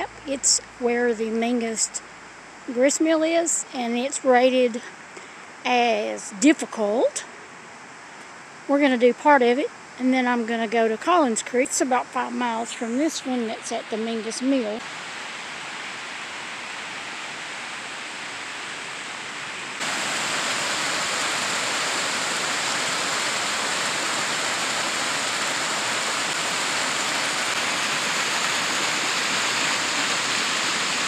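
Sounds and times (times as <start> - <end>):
water rushing over rocks: 13.0 - 31.0.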